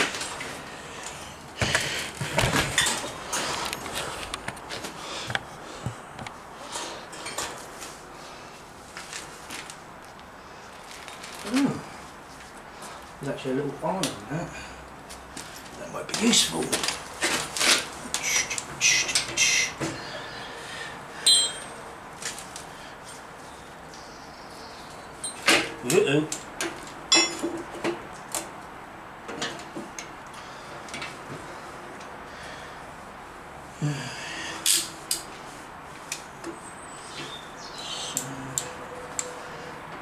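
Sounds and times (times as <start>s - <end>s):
metal clink: 21.3s - 21.8s.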